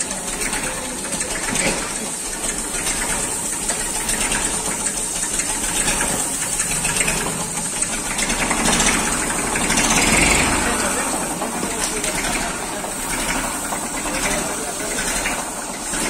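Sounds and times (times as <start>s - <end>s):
tractor engine idling: 0.0s - 16.0s.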